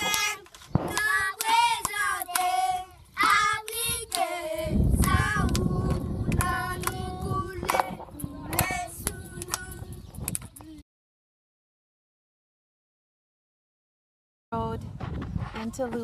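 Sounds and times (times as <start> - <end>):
hand clapping: 0.0 - 2.6, 3.2 - 4.3, 5.0 - 10.6
children singing together: 0.0 - 10.0
low rumble on microphone: 3.5 - 10.7.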